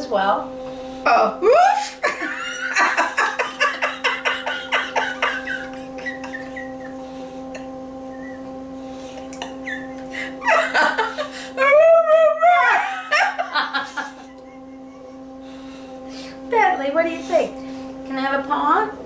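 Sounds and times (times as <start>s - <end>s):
steady low hum: 0.0s - 19.0s
women laughing: 1.8s - 7.8s, 9.1s - 15.4s.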